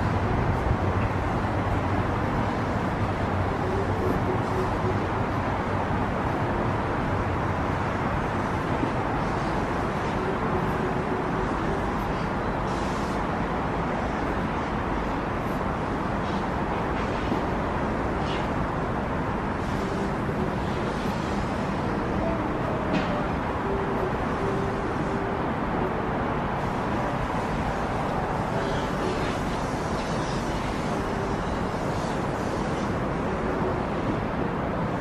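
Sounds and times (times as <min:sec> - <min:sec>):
distant road traffic: 0:00.0 - 0:35.0.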